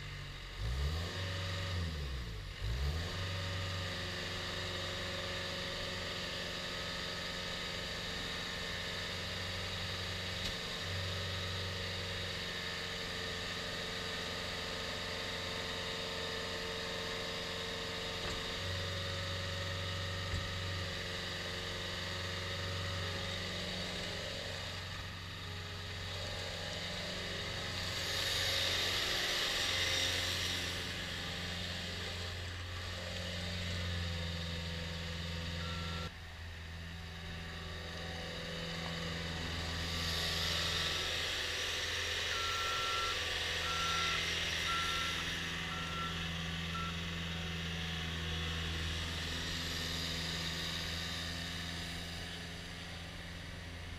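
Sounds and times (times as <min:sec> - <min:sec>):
diesel engine running: 0:00.0 - 0:53.9
reverse alarm beeps: 0:35.6 - 0:36.1, 0:42.3 - 0:47.2.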